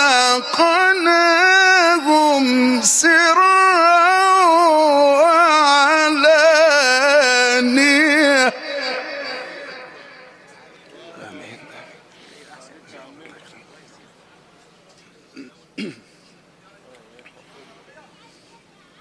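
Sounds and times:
man chanting into a microphone: 0.0s - 10.6s.

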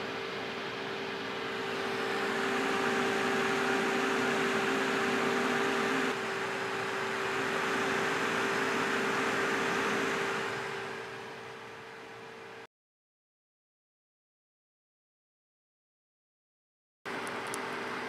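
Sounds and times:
cooling fan humming: 0.0s - 12.7s, 17.1s - 18.0s.

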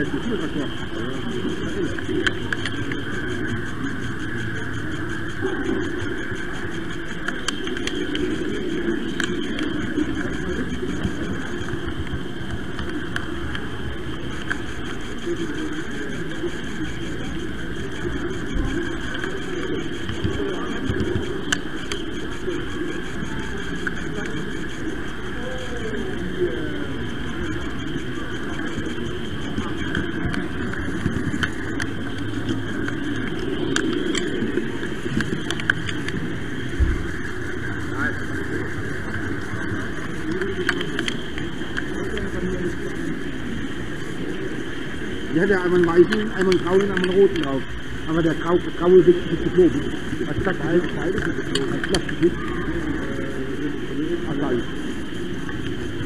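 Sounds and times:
model train running on track: 0.0s - 56.0s.

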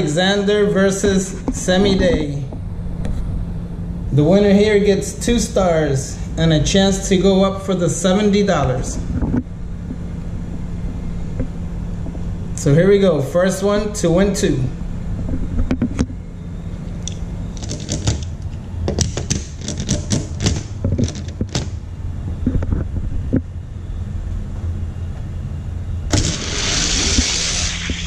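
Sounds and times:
low hum: 20.8s - 28.0s.

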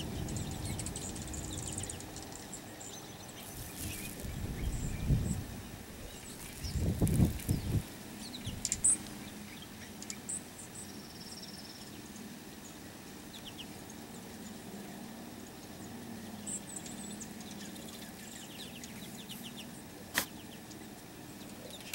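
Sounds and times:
birds chipping and twittering: 0.0s - 21.9s
sharp click: 20.1s - 20.3s.

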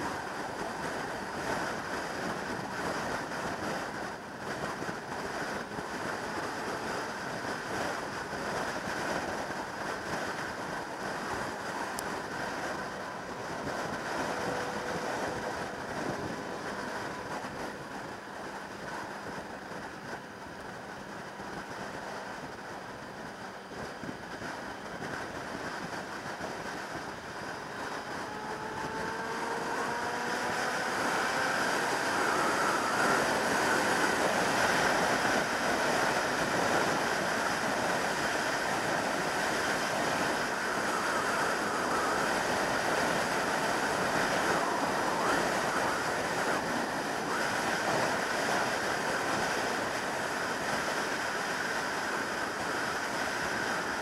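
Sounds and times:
wind rushing over microphone: 0.0s - 54.0s
motorcycle engine accelerating: 25.9s - 36.4s.

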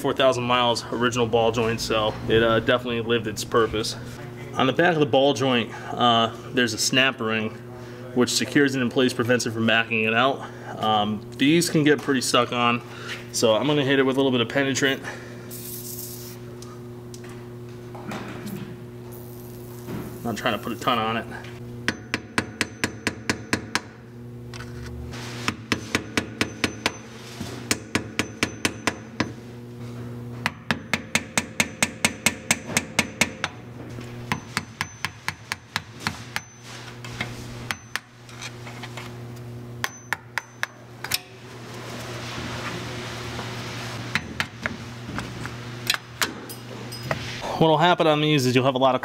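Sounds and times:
hammer tapping metal: 21.8s - 24.0s, 25.5s - 27.1s, 27.7s - 29.4s, 30.4s - 33.6s, 34.2s - 36.7s, 37.6s - 38.1s, 39.8s - 41.3s.

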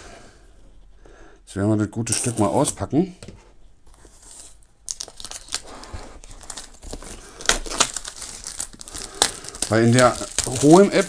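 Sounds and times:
plastic shrink-wrap tearing and crinkling: 4.8s - 11.0s.

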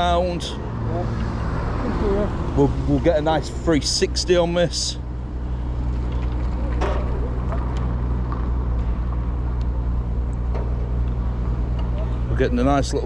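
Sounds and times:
low engine hum: 0.0s - 13.0s.

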